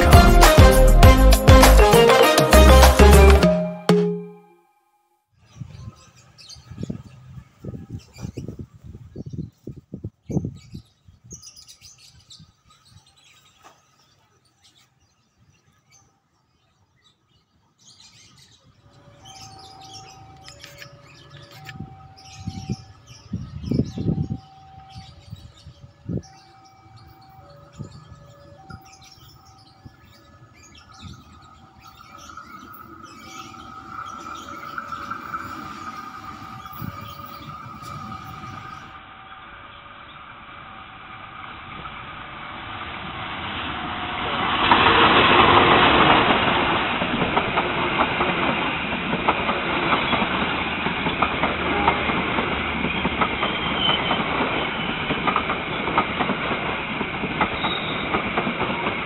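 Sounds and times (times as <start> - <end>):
small birds chirping: 5.5 - 39.0
diesel locomotive rumble and hum: 31.1 - 44.5.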